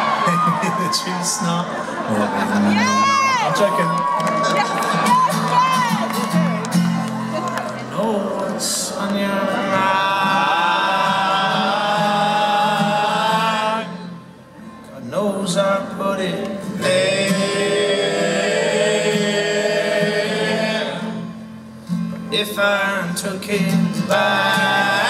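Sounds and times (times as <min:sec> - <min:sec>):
soft acoustic guitar: 0:04.9 - 0:25.0
men singing in harmony: 0:08.1 - 0:14.2, 0:15.2 - 0:21.4, 0:22.4 - 0:25.0.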